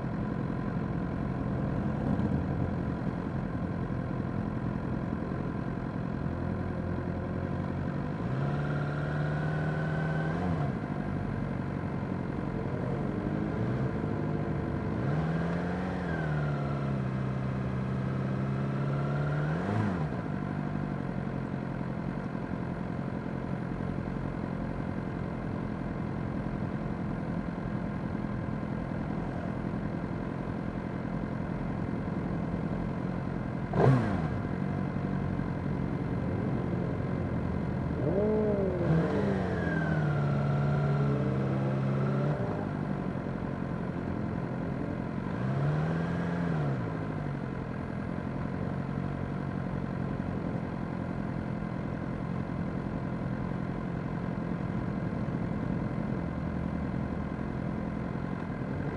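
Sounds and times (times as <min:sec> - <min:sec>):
motorcycle engines idling: 0:20.2 - 0:33.8, 0:34.4 - 0:41.6, 0:42.4 - 0:45.3, 0:46.8 - 0:58.9.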